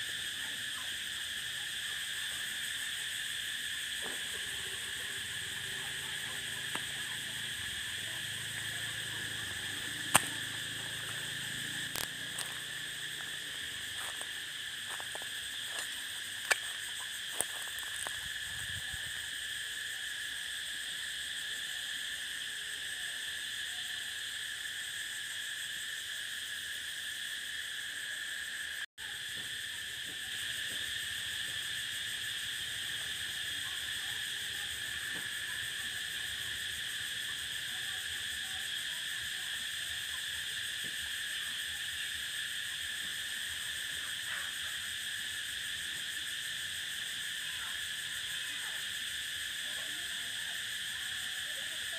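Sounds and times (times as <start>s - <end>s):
cicadas buzzing: 0.0s - 51.9s
sharp clicks: 10.0s - 10.7s.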